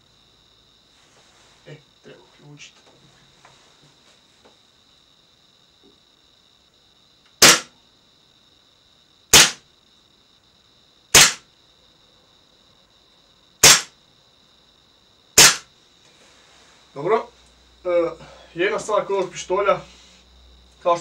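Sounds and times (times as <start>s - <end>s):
airsoft pistol shots: 7.4s - 7.7s, 9.3s - 9.6s, 11.1s - 11.4s, 13.6s - 13.9s, 15.4s - 15.7s.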